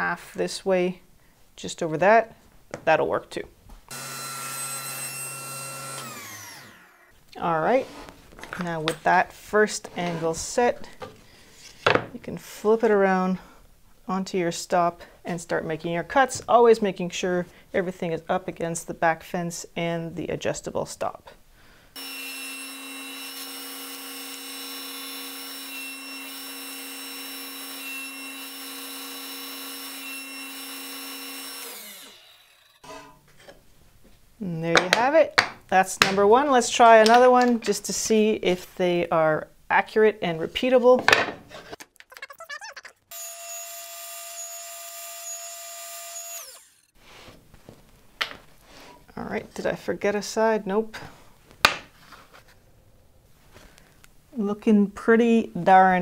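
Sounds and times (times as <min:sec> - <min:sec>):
saw blade winding down: 0:03.9 - 0:07.1, 0:22.0 - 0:33.1, 0:43.1 - 0:47.0
table saw running: 0:03.9 - 0:07.1, 0:22.0 - 0:33.1, 0:43.1 - 0:47.0.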